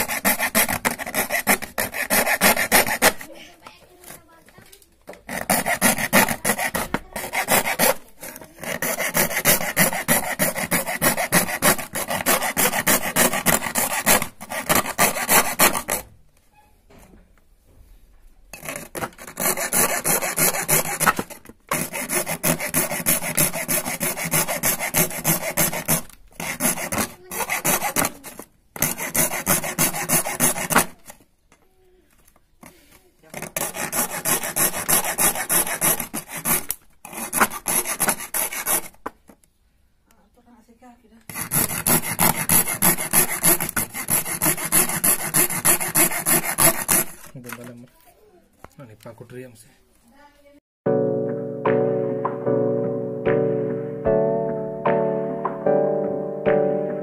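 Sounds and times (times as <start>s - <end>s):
hacksaw blade rasping: 0.0s - 3.4s, 5.1s - 16.1s, 18.5s - 31.2s, 33.2s - 39.1s, 41.3s - 47.8s.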